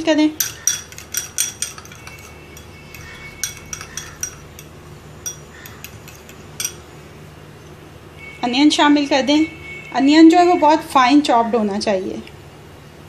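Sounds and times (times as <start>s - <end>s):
spoon clinking against glass: 0.3s - 6.9s
spoon stirring yogurt: 0.4s - 6.9s.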